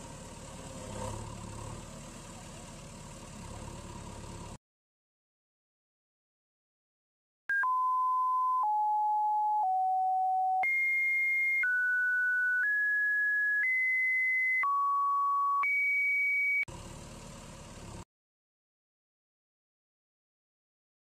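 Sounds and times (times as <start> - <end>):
electronic beep tones: 7.5 - 16.7.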